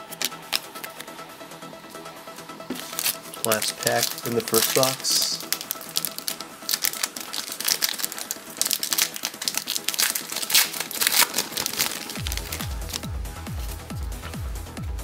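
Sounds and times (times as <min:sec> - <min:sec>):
electronic music with kick drum: 0:00.0 - 0:15.0
foil wrapper crinkling: 0:02.7 - 0:14.4.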